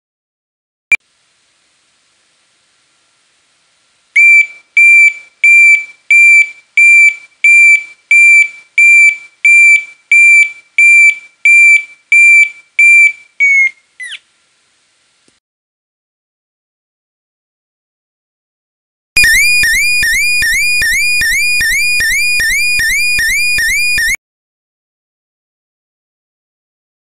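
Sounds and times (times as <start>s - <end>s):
reversing siren beeping: 19.2s - 24.2s.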